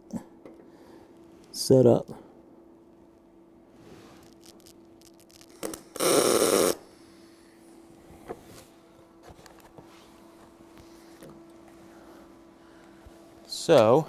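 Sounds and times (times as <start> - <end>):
welding arc burst: 4.4 - 6.8.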